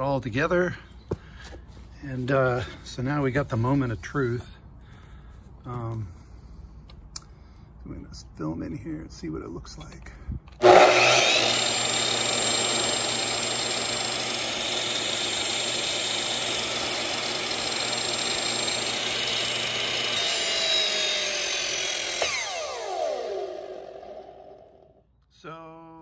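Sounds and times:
mitre saw motor running: 0:10.6 - 0:25.0
saw winding down whine: 0:10.6 - 0:25.0.

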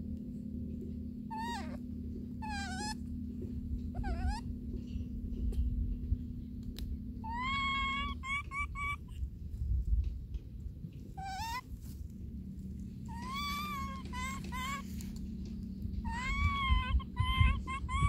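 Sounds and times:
baby monkey crying: 0:01.3 - 0:03.1, 0:03.8 - 0:04.6, 0:07.2 - 0:09.3, 0:11.1 - 0:11.8, 0:13.0 - 0:15.1, 0:16.0 - 0:18.0.

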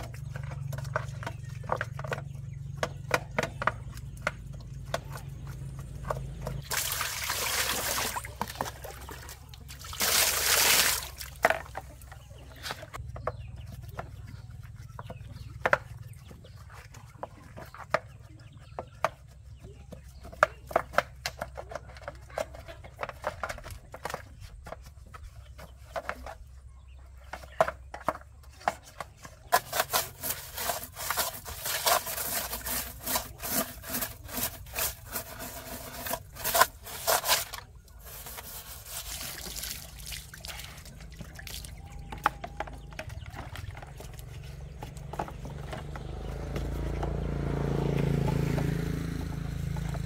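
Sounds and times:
scrubbing washing machine tub: 0:05.2 - 0:13.0, 0:27.6 - 0:50.0.

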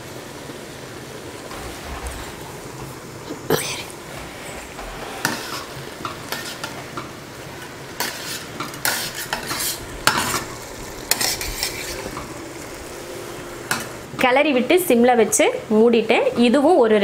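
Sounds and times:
rice sizzling: 0:00.0 - 0:15.2
spatula scraping metal pot: 0:01.5 - 0:12.4.

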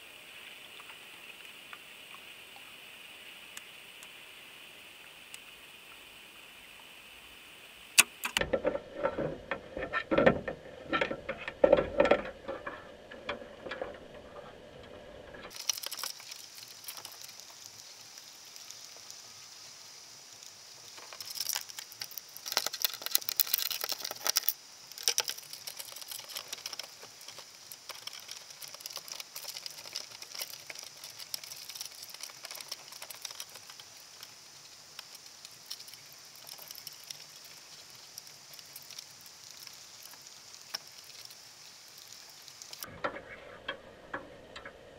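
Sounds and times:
crabs tapping and scraping on wire: 0:08.0 - 0:19.1, 0:20.8 - 0:44.8
underwater crackling and clicking: 0:08.0 - 0:19.2, 0:20.4 - 0:42.9.

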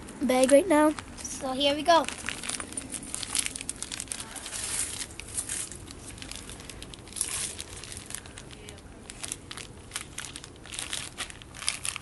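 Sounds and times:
plastic bag crinkling: 0:00.9 - 0:12.0.

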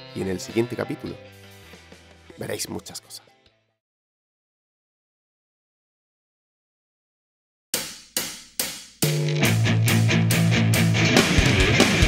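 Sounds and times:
rock music with electric guitar: 0:00.0 - 0:02.4, 0:09.0 - 0:12.0
steady driving drum beat: 0:07.8 - 0:12.0.

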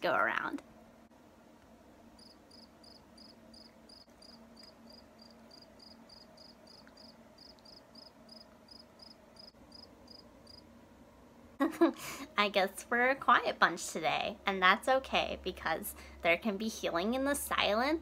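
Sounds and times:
crickets chirping: 0:02.2 - 0:10.7.

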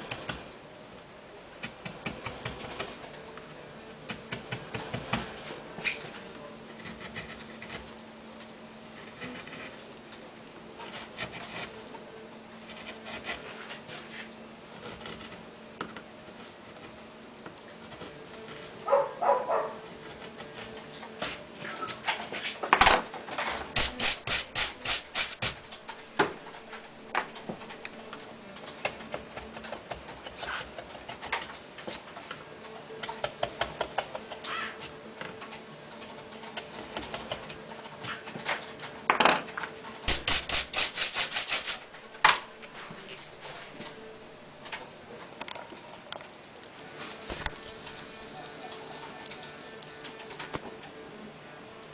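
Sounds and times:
scrapes and rubs on wood: 0:23.8 - 0:25.6, 0:40.1 - 0:41.9
bristle brush sweeping wood chips: 0:40.1 - 0:41.9.

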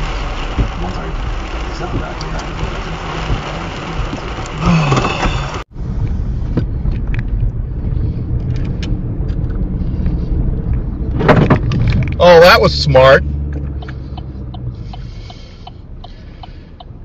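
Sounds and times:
rain hiss: 0:00.0 - 0:05.7
car engine and road hum: 0:00.0 - 0:17.0.

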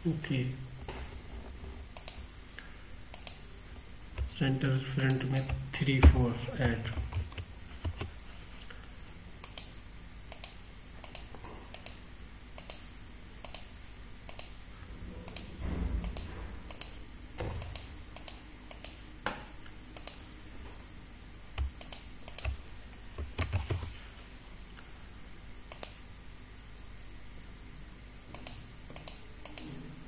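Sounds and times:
mouse and keyboard clicking: 0:02.0 - 0:02.2, 0:03.1 - 0:03.4, 0:07.0 - 0:08.1.

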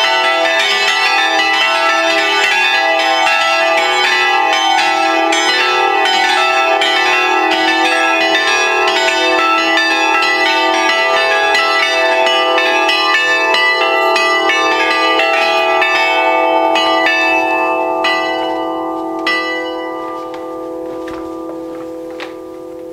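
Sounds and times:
church bells pealing: 0:00.0 - 0:22.9.

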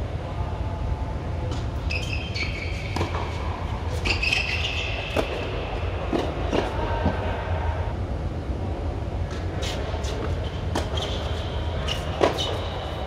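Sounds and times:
shoe squeaks on hard court: 0:01.8 - 0:05.4, 0:09.6 - 0:13.0.

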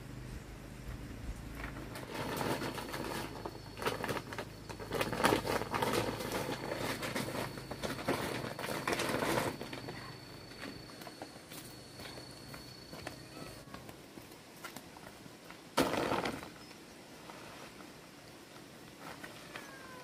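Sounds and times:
dry pieces rustling and crackling: 0:01.6 - 0:14.0
plastic sack crinkling: 0:02.0 - 0:10.8, 0:15.8 - 0:16.6.

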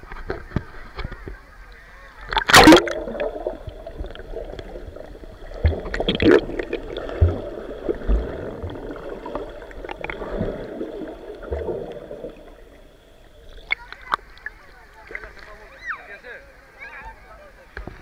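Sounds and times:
underwater gurgling and bubbling: 0:02.3 - 0:13.7.

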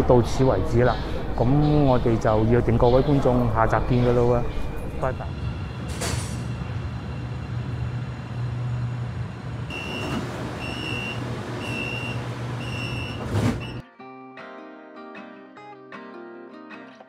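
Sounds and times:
train low hum: 0:00.0 - 0:13.8
train doors thudding shut: 0:05.8 - 0:06.7, 0:09.7 - 0:13.8
door warning beeps: 0:09.7 - 0:13.8.

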